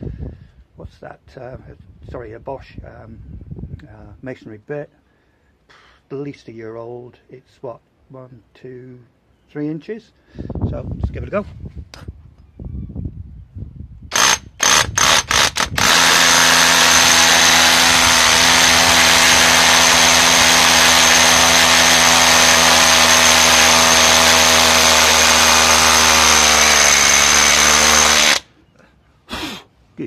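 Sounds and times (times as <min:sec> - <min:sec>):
hammer drill boring into concrete: 0:14.1 - 0:28.5.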